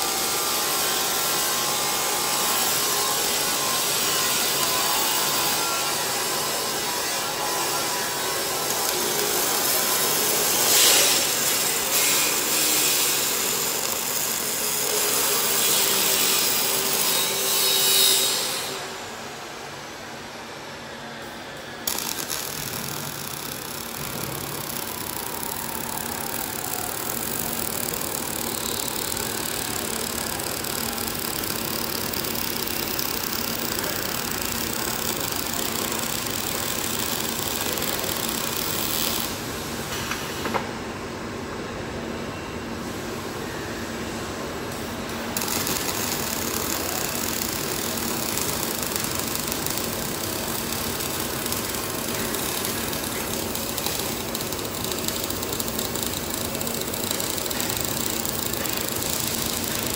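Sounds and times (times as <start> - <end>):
welding arc crackling and hissing: 0.0 - 18.8, 21.8 - 39.5, 44.8 - 59.9
machine hum: 21.6 - 39.6, 44.9 - 59.9
torch click: 21.8 - 39.2.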